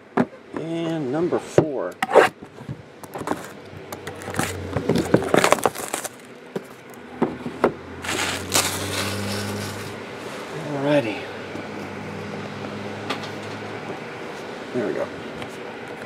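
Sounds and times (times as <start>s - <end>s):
plastic shrink wrap crinkling: 3.3s - 6.9s, 8.0s - 10.0s.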